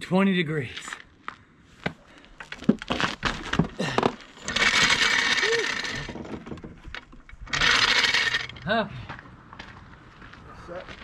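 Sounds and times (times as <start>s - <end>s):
knocks and clatter of gear: 1.8s - 11.0s
floor jack rasping scrape: 4.4s - 6.9s, 7.5s - 8.6s.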